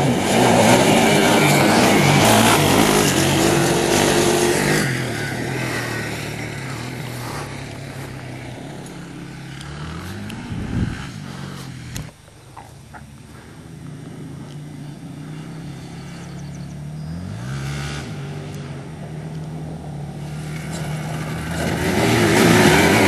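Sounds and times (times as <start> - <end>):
rush of noise: 0.0 - 16.3
faint engine: 0.0 - 23.0
quad bike engine running hard: 0.0 - 23.0.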